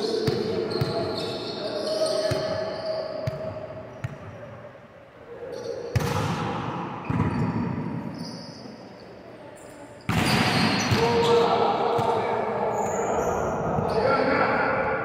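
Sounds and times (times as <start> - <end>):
volleyball echoing thuds: 5.9 - 8.0, 10.1 - 12.3.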